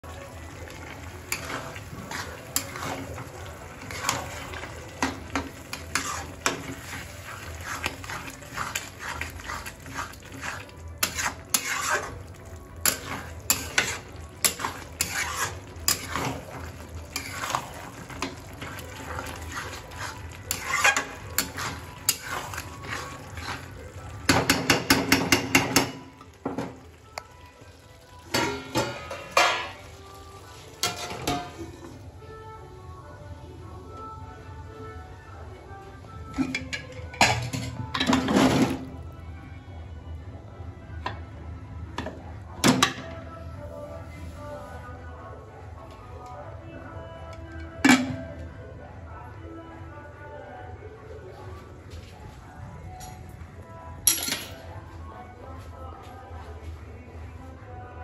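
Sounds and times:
metal spatula scraping a pan: 0:00.8 - 0:25.4, 0:30.7 - 0:31.9.

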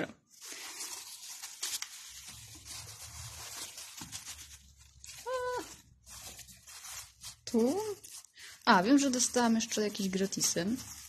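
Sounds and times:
packaging rustling and tearing: 0:00.3 - 0:11.0.

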